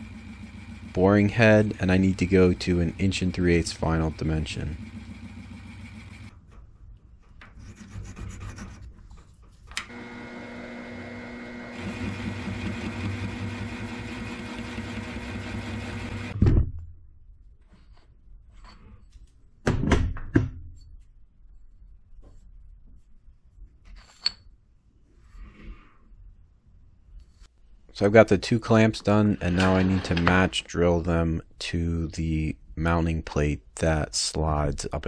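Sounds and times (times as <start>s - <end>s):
metal cutting noise: 0.0s - 6.3s, 9.8s - 16.4s
milling machine humming: 0.0s - 6.3s, 9.8s - 16.4s
thump: 16.4s - 16.8s.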